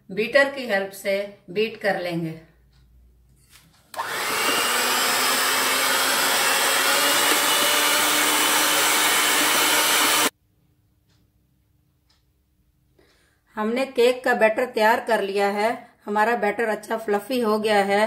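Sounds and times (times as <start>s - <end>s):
electric beater motor whirring: 4.0s - 10.3s.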